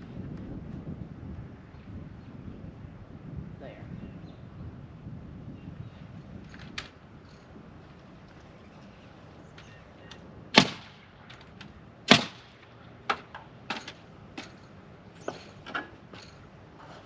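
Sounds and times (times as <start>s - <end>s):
clicks and knocks of wood and tools: 11.2s - 11.8s, 12.9s - 17.0s
nails hammered into wood: 12.1s - 12.5s.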